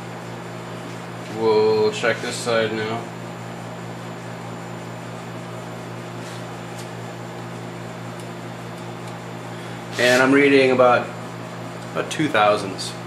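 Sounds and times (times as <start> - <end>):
electrical hum with fan hiss: 0.0 - 13.0.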